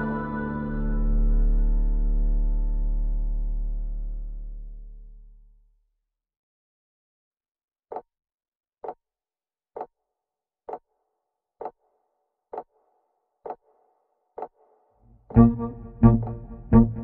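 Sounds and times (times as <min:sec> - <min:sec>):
faint soft sustained tone: 0:15.4 - 0:17.0.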